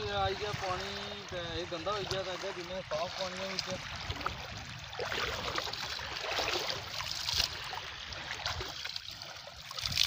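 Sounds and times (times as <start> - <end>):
small waves washing at shore: 0.0 - 10.0
water splashing: 0.0 - 10.0
water pouring from hands: 8.3 - 10.0.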